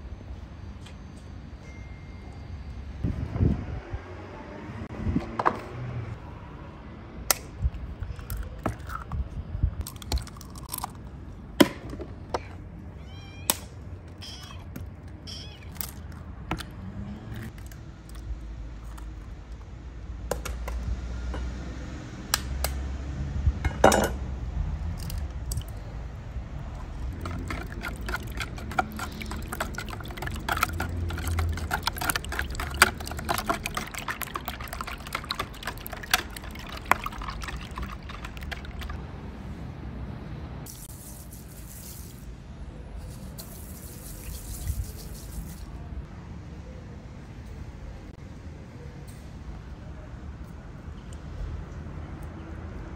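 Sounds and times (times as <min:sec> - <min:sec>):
whisk beating eggs: 0:26.9 - 0:39.0.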